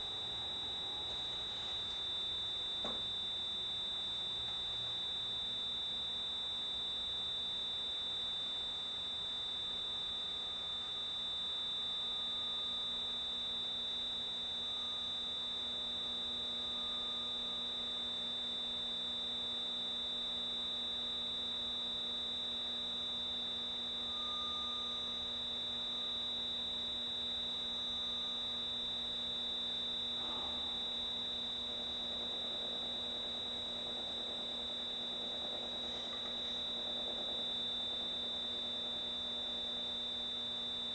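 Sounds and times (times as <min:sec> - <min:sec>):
high whine: 0:26.8 - 0:40.9.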